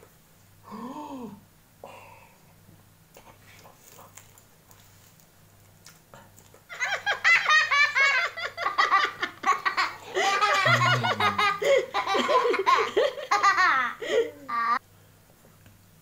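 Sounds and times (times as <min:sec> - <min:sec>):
high-pitched laughter: 0:06.7 - 0:14.8.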